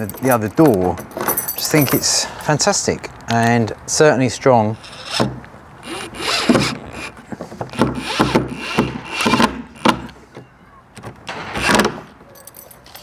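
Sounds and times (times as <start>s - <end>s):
cordless drill driving screws: 4.8s - 7.1s, 7.7s - 9.9s.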